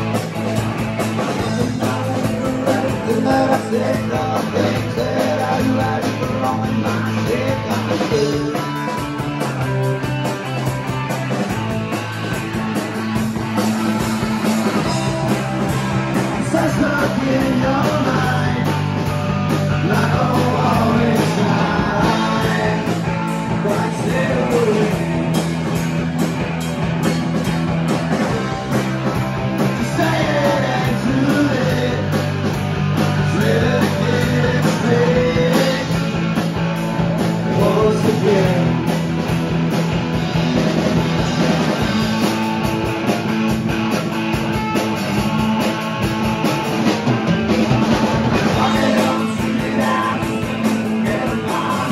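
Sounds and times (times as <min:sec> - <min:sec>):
rock band playing: 0:00.0 - 0:51.9
person singing: 0:01.4 - 0:08.8, 0:16.4 - 0:19.0, 0:19.8 - 0:25.2, 0:29.6 - 0:32.3, 0:33.1 - 0:36.2, 0:37.4 - 0:38.9, 0:48.4 - 0:51.9.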